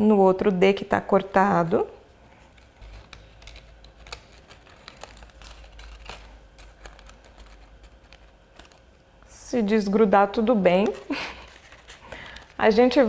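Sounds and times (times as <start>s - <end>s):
paper being folded: 2.2s - 9.4s, 10.6s - 13.0s.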